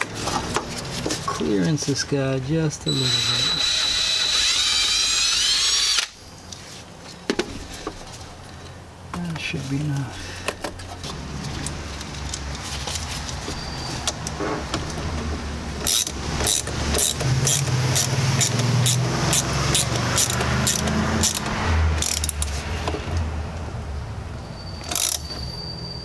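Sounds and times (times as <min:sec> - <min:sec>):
ratchet clicking: 0:02.9 - 0:06.2, 0:15.8 - 0:22.6, 0:24.8 - 0:25.4.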